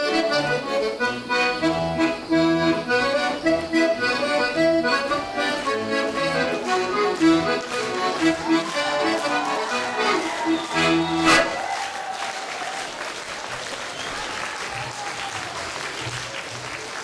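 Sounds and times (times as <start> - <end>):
accordion dance tune: 0.0 - 11.6.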